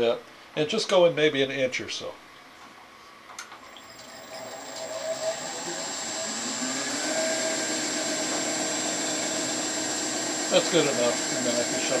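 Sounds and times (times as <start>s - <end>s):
wood lathe motor whining: 3.8s - 12.0s.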